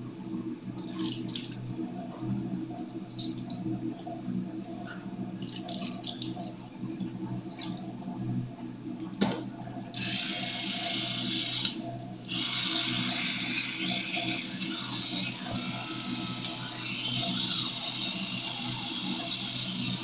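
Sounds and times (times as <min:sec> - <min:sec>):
tap running: 0:09.2 - 0:20.0.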